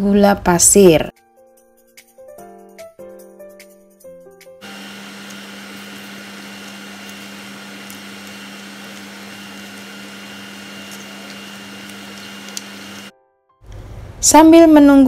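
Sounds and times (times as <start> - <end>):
whirring motor hum: 4.6 - 13.1.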